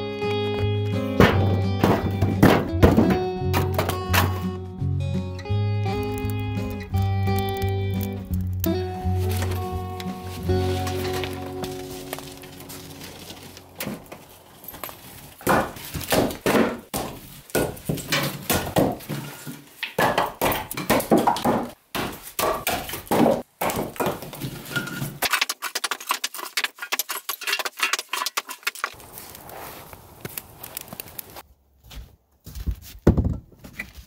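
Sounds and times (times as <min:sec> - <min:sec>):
firewood knocking and clattering: 0:01.0 - 0:04.5, 0:05.9 - 0:29.3.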